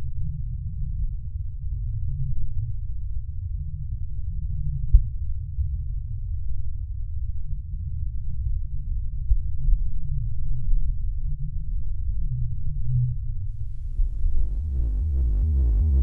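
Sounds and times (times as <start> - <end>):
deep bass drone: 8.3 - 16.0
electronic music with pulsing beat: 14.0 - 16.0.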